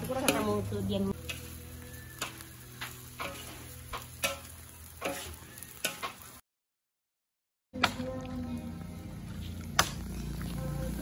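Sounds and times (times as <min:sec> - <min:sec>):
wood fire crackling and popping: 0:00.0 - 0:06.4, 0:09.5 - 0:11.0
low hum: 0:07.9 - 0:11.0.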